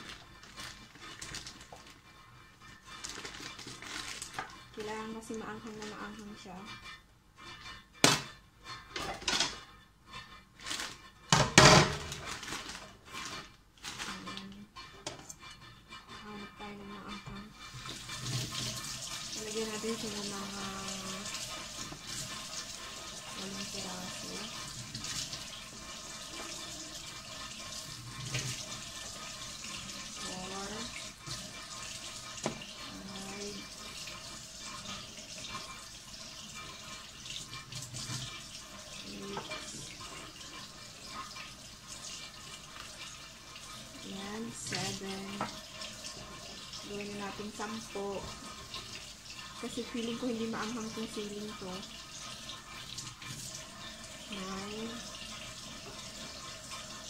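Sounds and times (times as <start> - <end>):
plastic bag rustling: 0.0 - 6.2, 10.5 - 14.6.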